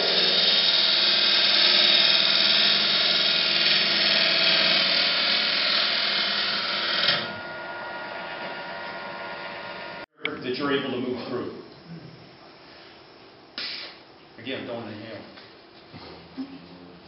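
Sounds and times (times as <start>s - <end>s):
tool cutting spinning wood: 0.0s - 10.0s
wood lathe humming: 0.0s - 10.1s.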